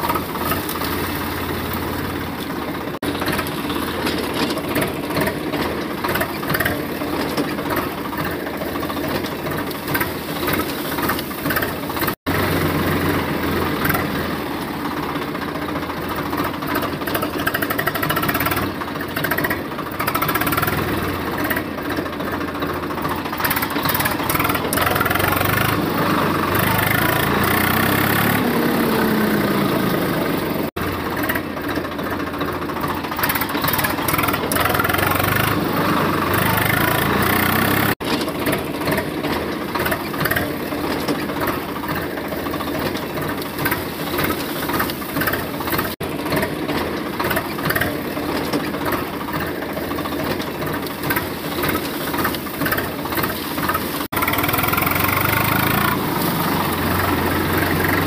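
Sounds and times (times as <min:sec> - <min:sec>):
tractor engine chugging: 0:00.0 - 0:58.0.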